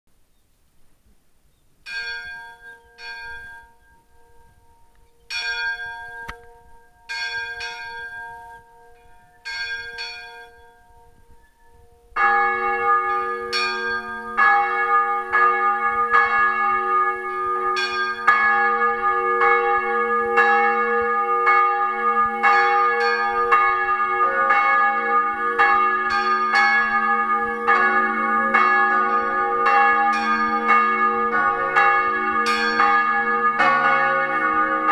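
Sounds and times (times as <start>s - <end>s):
church bells ringing: 1.9s - 34.9s.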